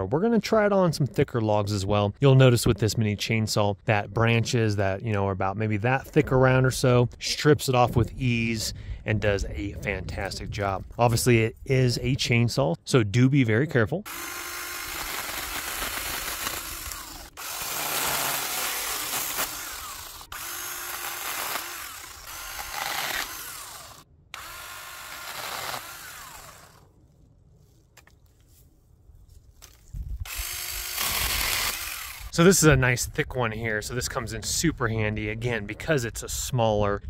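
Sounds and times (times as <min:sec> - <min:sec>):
electric chainsaw cutting branches: 0:14.1 - 0:26.9, 0:30.2 - 0:32.4.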